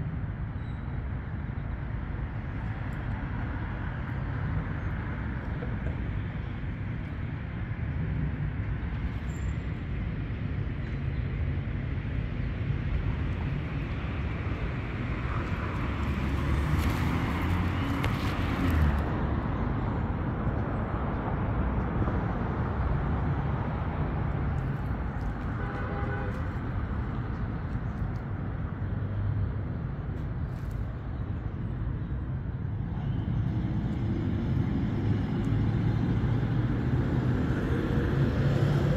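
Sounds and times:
street traffic rumble: 0.0 - 38.9
vehicle passing: 14.4 - 20.2.

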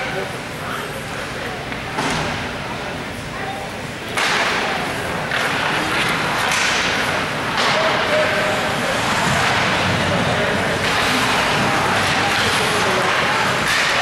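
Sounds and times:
hockey stick cracks: 12.0 - 14.0.

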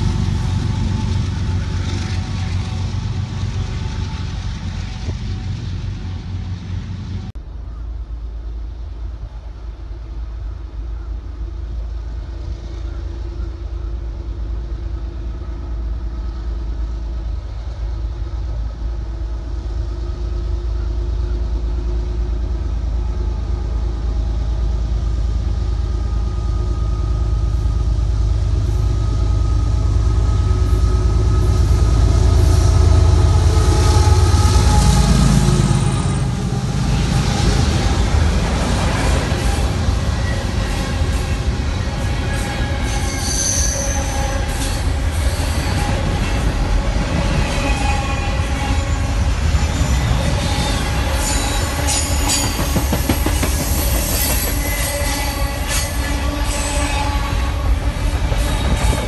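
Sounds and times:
freight wheels rushing on rail: 0.0 - 59.0
locomotive engine rumble: 0.0 - 59.0.

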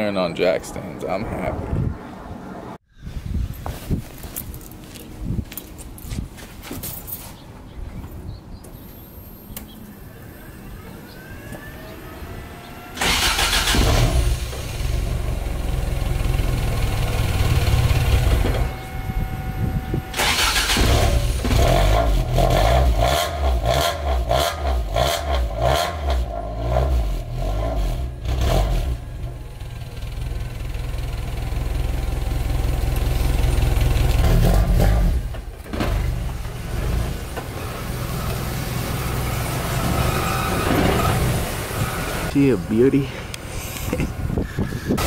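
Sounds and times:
car engine starting and revving: 9.4 - 42.5.

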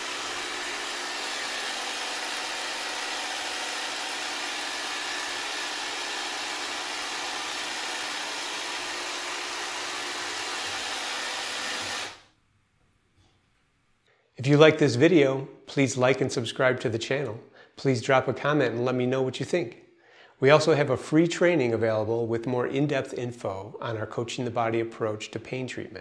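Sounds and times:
massage gun motor buzz: 0.0 - 12.2.

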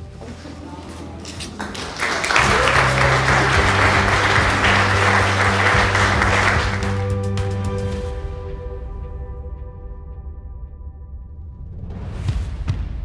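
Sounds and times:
soft background music: 0.0 - 11.6
guests applauding: 1.5 - 7.5.

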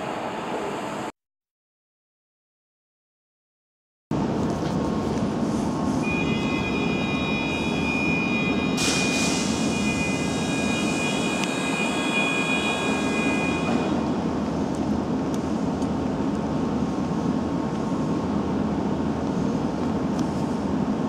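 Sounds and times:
electric train hum: 0.0 - 1.1, 4.2 - 21.0
high whine: 5.9 - 14.3.

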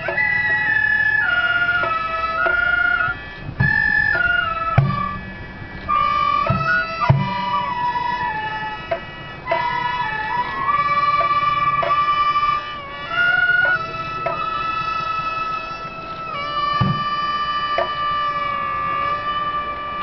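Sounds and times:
high sustained chords: 0.0 - 20.0
reedy wind melody: 0.0 - 20.0
low drum strokes: 3.5 - 10.1, 16.8 - 17.2.

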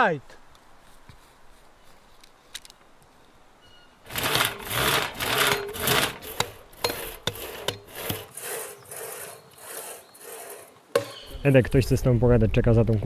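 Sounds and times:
hand saw rasping through log: 4.1 - 11.2.

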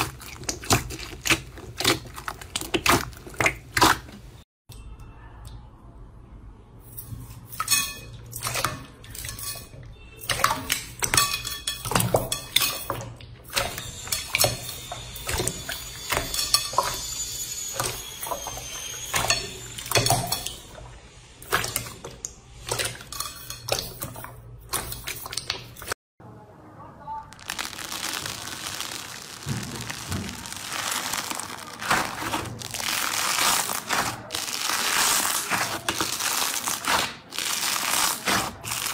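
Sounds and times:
slime squelching: 0.0 - 4.4, 27.3 - 38.9.

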